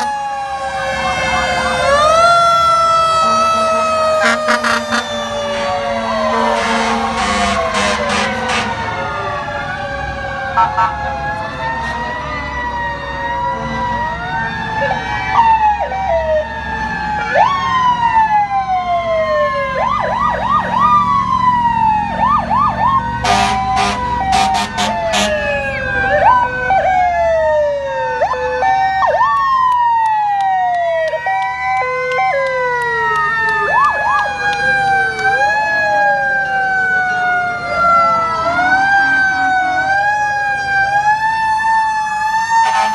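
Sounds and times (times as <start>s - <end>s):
emergency vehicle sirens: 0.0s - 42.9s
truck engines rumbling: 0.0s - 42.9s
sharp short siren blasts: 3.1s - 9.1s, 10.6s - 12.2s, 23.2s - 25.9s.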